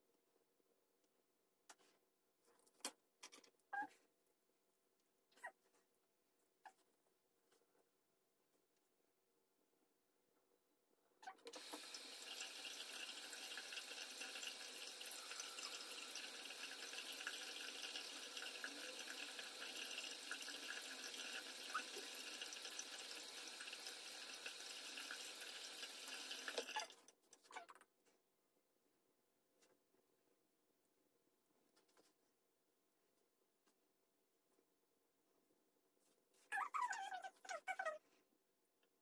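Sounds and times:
tap water running: 11.5 - 26.9.

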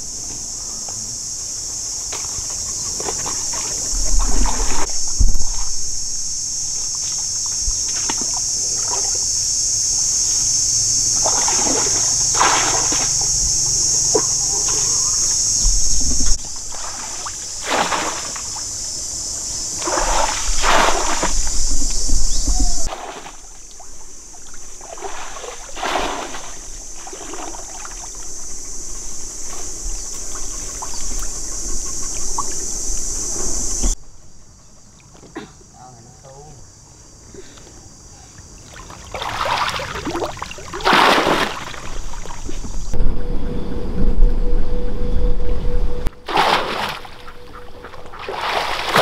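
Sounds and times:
steady high-pitched hiss: 0.0 - 49.0
water splashing and sloshing: 2.0 - 9.3, 11.1 - 34.0, 38.5 - 43.2, 46.0 - 49.0.

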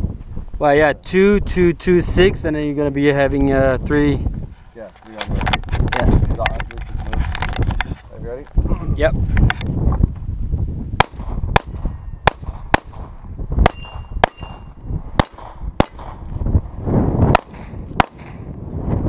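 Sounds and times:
pistol shots: 11.0 - 16.2, 17.3 - 18.5.

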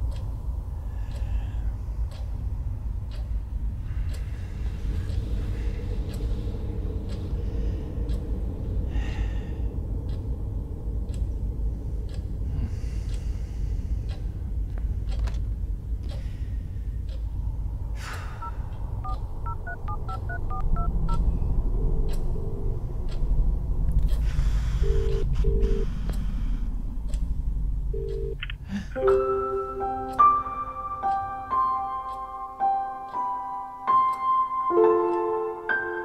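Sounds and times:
faint ticks: 0.0 - 2.4, 14.1 - 16.4, 22.0 - 28.6
steady low rumble: 0.0 - 33.9
low steady phone line tone: 18.4 - 21.6, 24.8 - 25.9, 27.9 - 28.4
telephone keypad touch-tones: 19.0 - 21.2.

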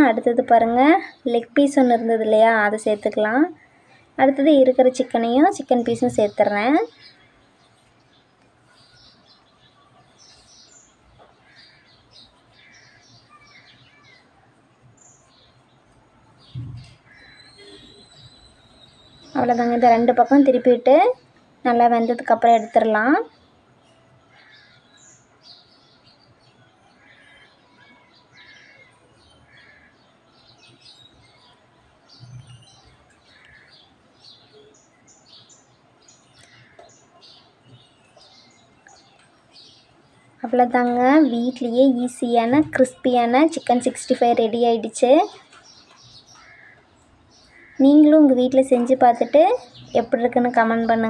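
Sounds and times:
faint bird chirps: 2.4 - 20.7, 21.7 - 51.0
low thump: 16.5 - 16.9.

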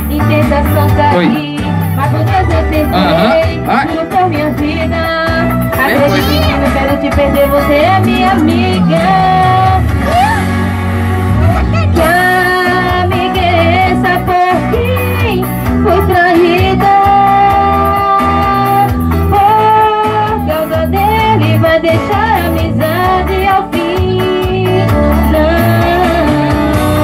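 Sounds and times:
woman singing into a microphone: 0.0 - 10.5, 11.8 - 27.0
backing music with bass and guitar: 0.0 - 27.0.

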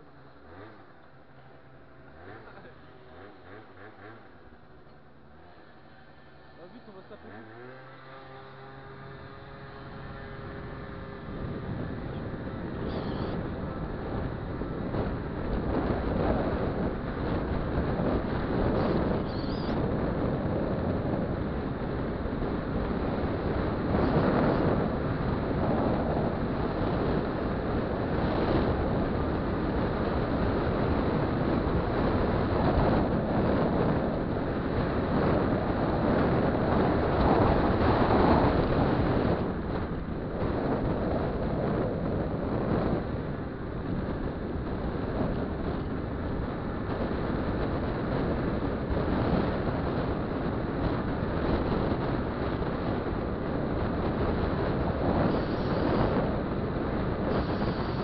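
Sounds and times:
two-stroke scooter engine running: 0.1 - 40.4, 52.7 - 58.0
wind on camera microphone: 6.9 - 58.0.

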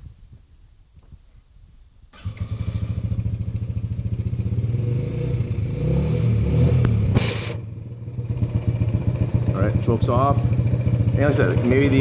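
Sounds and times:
atv engine running and revving: 2.4 - 12.0.

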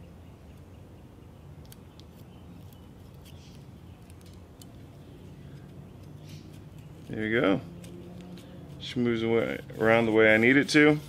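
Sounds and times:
low steady hum: 0.0 - 11.0
small metallic clicks: 1.6 - 4.9.

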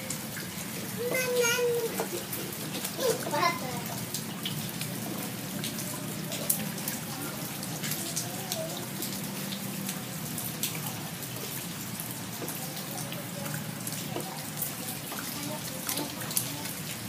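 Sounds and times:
rain on paved ground: 0.0 - 17.0.

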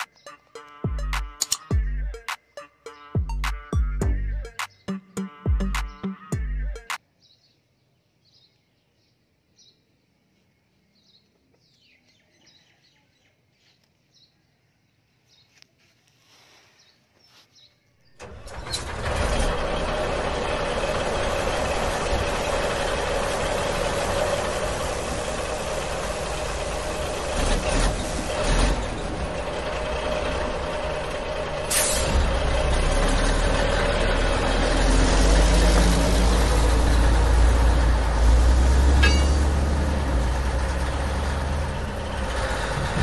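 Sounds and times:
truck engine running: 18.2 - 43.0.

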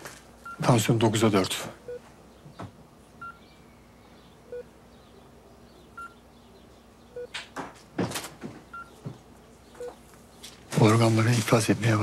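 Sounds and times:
medical monitor beeping: 0.4 - 0.9, 1.8 - 2.1, 3.2 - 3.5, 4.5 - 4.7, 6.0 - 6.2, 7.2 - 7.4, 8.7 - 9.0.

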